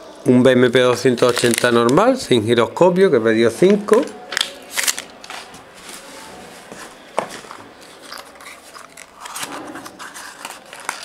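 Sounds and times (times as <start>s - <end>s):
plastic bags rustling: 1.0s - 2.2s, 3.9s - 11.0s.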